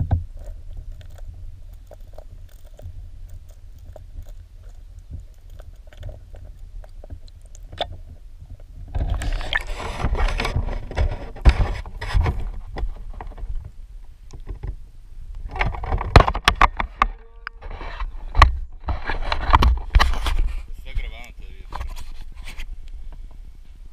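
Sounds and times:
camera housing knocks and bumps: 0:15.5 - 0:17.1.

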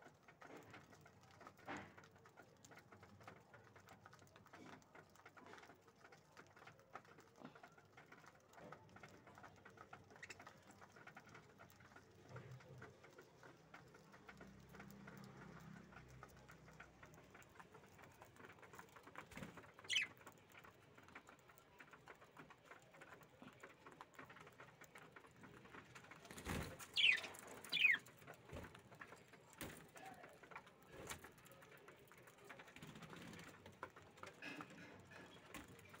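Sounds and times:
birds pecking seed: 0:00.0 - 0:36.0
bird chirp: 0:19.8 - 0:20.2, 0:26.8 - 0:28.2.

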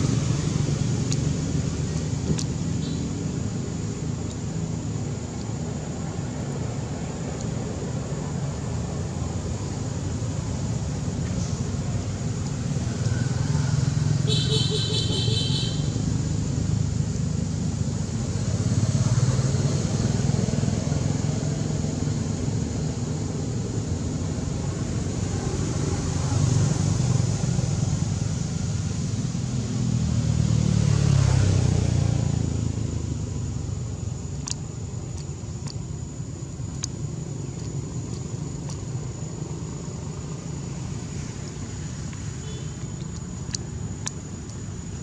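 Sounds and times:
passing road vehicles rumbling: 0:00.0 - 0:45.0
faint ticks: 0:34.4 - 0:39.2, 0:41.4 - 0:45.0.

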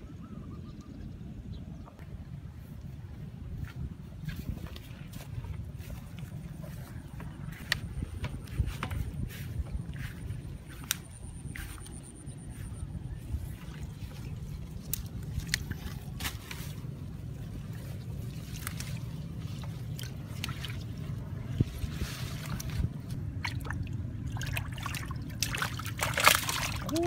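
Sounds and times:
hands squelching in mud: 0:13.5 - 0:27.0.

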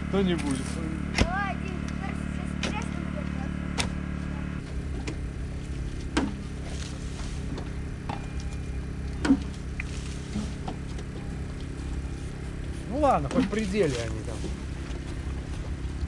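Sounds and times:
engine-driven water pump running: 0:00.0 - 0:16.0
sharp digging knocks: 0:06.0 - 0:08.4.

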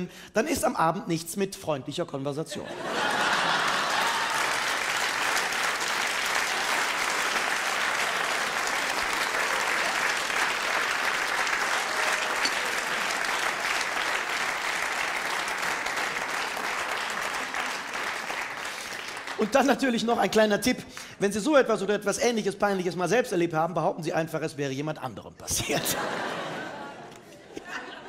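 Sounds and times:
audience applauding: 0:02.9 - 0:20.0.

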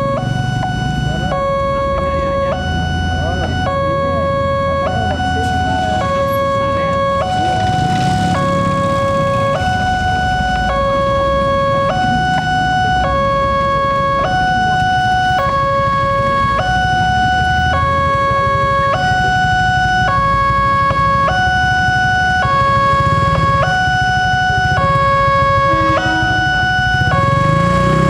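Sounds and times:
motorbike engines: 0:00.0 - 0:28.0
road noise: 0:00.0 - 0:28.0
two-tone level crossing alarm: 0:00.0 - 0:28.0.

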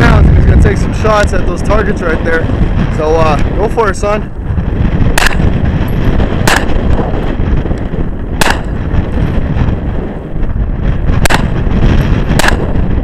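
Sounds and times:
wind noise on microphone: 0:00.0 - 0:13.0
pistol shots: 0:05.2 - 0:05.6, 0:06.4 - 0:07.0, 0:08.4 - 0:08.8, 0:11.2 - 0:11.7, 0:12.3 - 0:12.9.

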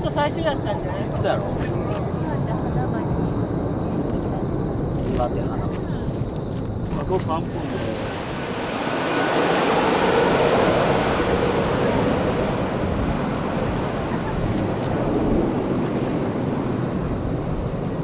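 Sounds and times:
jet airliner passing overhead: 0:07.1 - 0:18.0.

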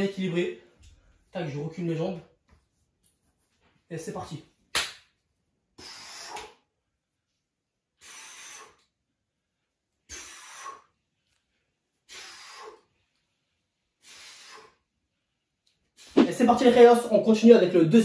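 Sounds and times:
man breathing hard: 0:05.8 - 0:06.6, 0:08.0 - 0:08.9, 0:10.1 - 0:11.0, 0:12.0 - 0:13.0, 0:14.0 - 0:14.9.

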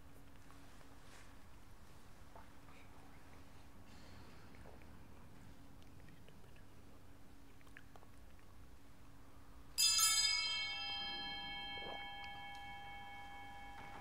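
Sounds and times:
bright metallic strike ringing: 0:09.8 - 0:14.0.

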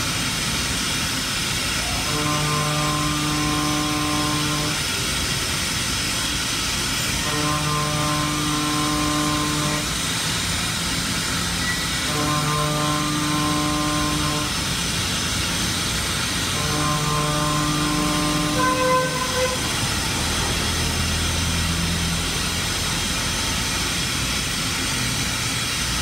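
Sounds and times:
milling machine cutting: 0:02.0 - 0:26.0
pitched hum: 0:07.2 - 0:20.6.

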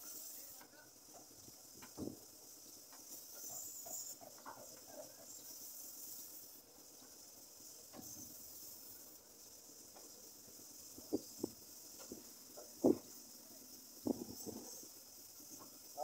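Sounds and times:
steady high hiss: 0:00.0 - 0:16.0.

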